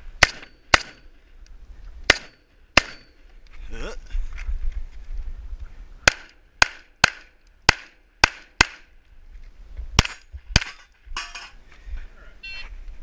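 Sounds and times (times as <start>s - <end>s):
pistol shots: 0.2s - 1.0s, 2.1s - 3.2s, 6.0s - 8.9s.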